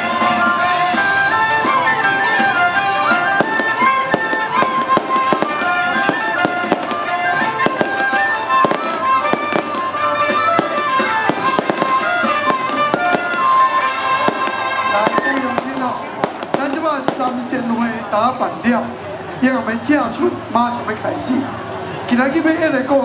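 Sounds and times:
festival music with high melody: 0.0s - 23.0s
fireworks popping: 3.1s - 17.9s.

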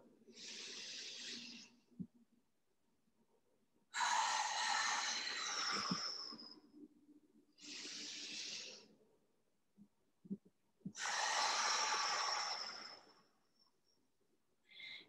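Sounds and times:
woman breathing deeply: 4.0s - 6.4s, 11.0s - 13.2s, 14.7s - 15.0s.

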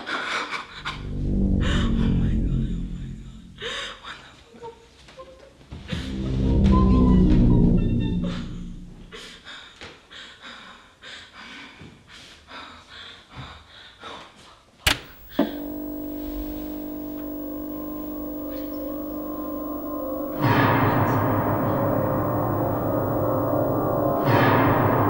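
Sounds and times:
eerie drone of held tones: 15.2s - 25.0s.

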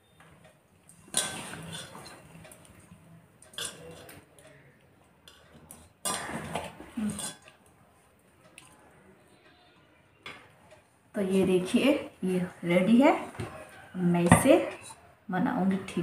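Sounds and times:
scrapes and knocks on metal bowl: 1.1s - 2.3s, 3.5s - 4.2s, 14.2s - 15.0s.

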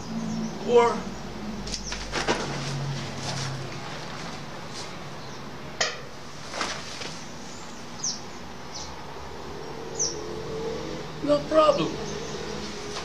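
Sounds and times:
steady outdoor hiss: 0.0s - 13.0s
rustling knocks on grass: 1.9s - 4.9s, 5.8s - 7.2s.

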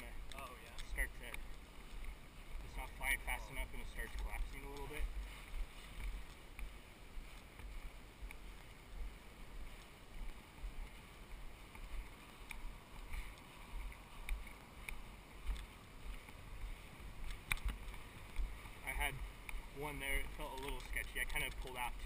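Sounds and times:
fabric ticks and rustles: 0.0s - 22.0s
wind rumble on microphone: 0.0s - 22.0s.

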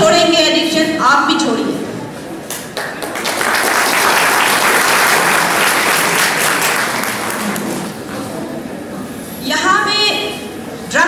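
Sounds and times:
audience applauding: 2.5s - 8.1s.

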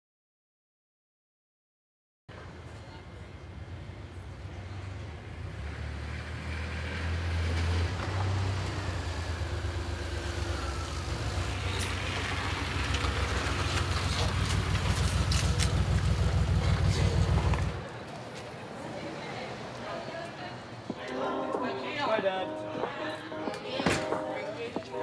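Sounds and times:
car engine running: 9.4s - 17.8s.

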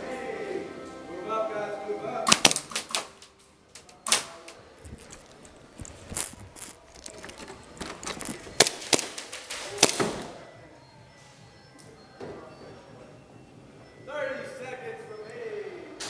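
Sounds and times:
airsoft gun shots: 2.3s - 3.2s.

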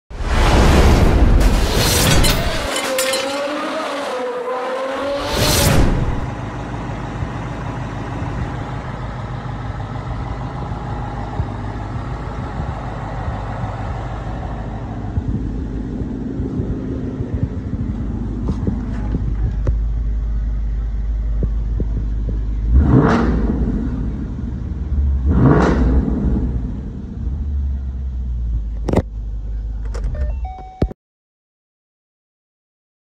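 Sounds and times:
whoosh: 0.1s - 2.7s, 5.0s - 6.3s
engine running steadily: 5.2s - 30.4s.

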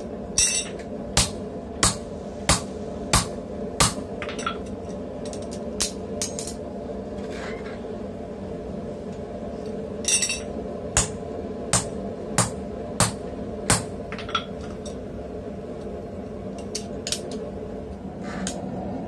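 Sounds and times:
hammer striking hot steel: 0.0s - 6.3s, 10.1s - 14.9s.

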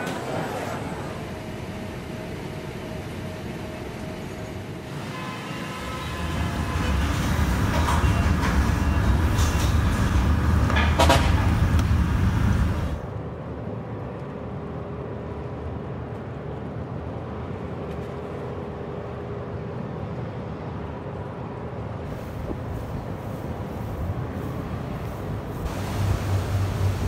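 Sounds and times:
road traffic: 3.6s - 16.1s, 17.1s - 27.0s
vehicle horn: 5.0s - 7.0s.

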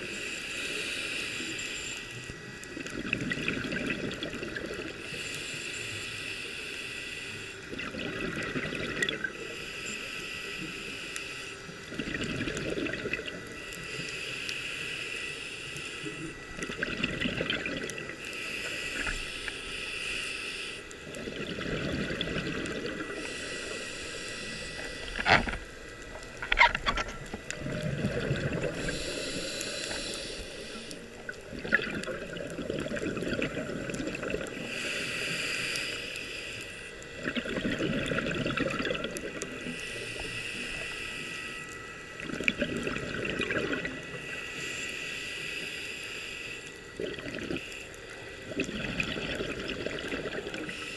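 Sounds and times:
diver breathing through regulator: 0.0s - 2.2s, 4.9s - 7.8s, 9.3s - 12.8s, 13.4s - 16.8s, 17.6s - 32.0s, 32.9s - 37.4s, 38.0s - 42.2s, 43.5s - 50.9s
exhaled bubbles rushing: 2.8s - 5.0s, 7.7s - 9.3s, 11.9s - 13.5s, 16.6s - 18.2s, 21.0s - 23.2s, 26.4s - 29.0s, 31.2s - 34.7s, 37.2s - 39.6s, 42.2s - 44.0s, 47.0s - 47.6s, 48.4s - 50.7s.

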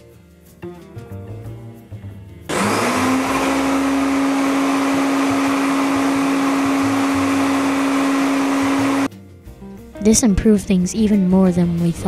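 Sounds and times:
shop vac motor whine and hum: 2.5s - 9.1s.

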